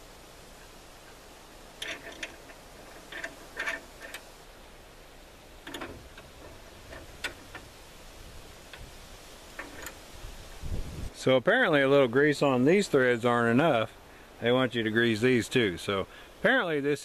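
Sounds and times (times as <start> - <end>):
small metal parts clicking: 1.8 - 4.3, 5.6 - 7.8, 9.5 - 10.0.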